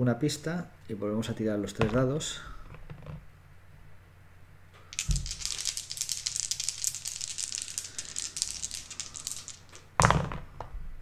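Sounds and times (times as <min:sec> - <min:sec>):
dice rattling: 0:04.9 - 0:10.4.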